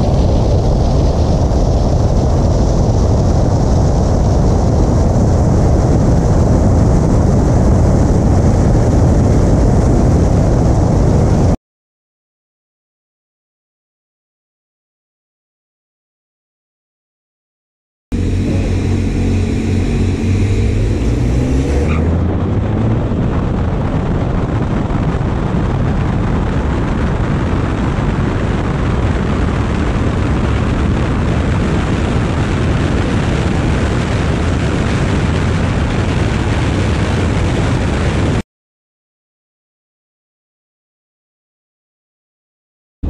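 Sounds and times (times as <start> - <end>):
wind and road noise rushing: 0.0 - 11.6, 18.1 - 38.4
car engines revving: 18.1 - 24.2.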